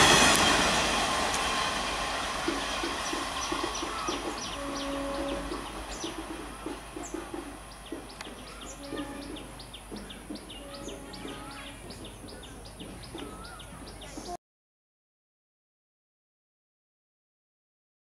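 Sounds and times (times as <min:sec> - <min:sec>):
distant train rumble: 0:00.0 - 0:14.4
small birds chirping: 0:02.8 - 0:14.4.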